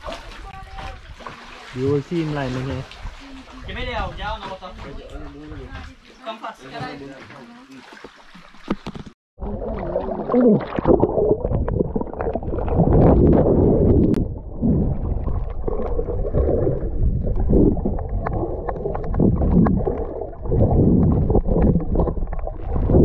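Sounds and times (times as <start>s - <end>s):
underwater bubbling: 8.5s - 23.0s.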